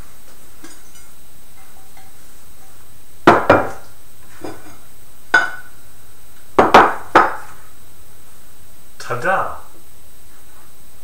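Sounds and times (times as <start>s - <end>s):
ceramic crock knocking on counter: 3.3s - 3.8s, 6.6s - 7.4s.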